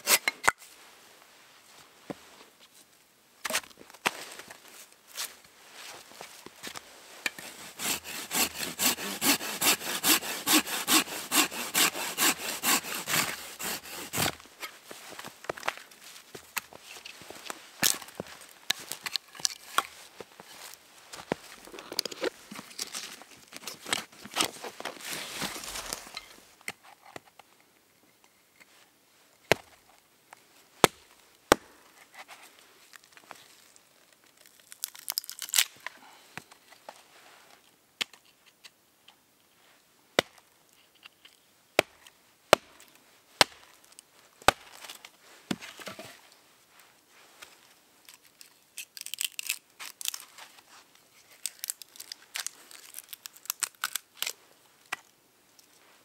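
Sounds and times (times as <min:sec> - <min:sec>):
hatchet striking log: 0:07.4 - 0:14.4
wood crackling and tearing: 0:07.4 - 0:14.4, 0:21.6 - 0:26.2, 0:34.2 - 0:35.9, 0:48.1 - 0:50.5, 0:51.2 - 0:54.4
rustle of gear: 0:14.3 - 0:27.2.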